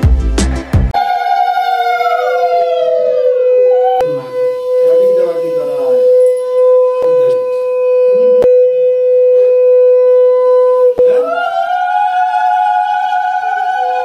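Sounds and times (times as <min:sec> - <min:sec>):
conch shell blown: 0:03.2 - 0:11.3.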